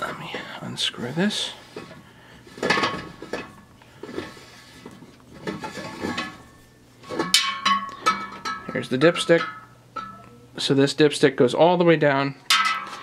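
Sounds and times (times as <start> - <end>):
metallic ringing: 5.8 - 10.6.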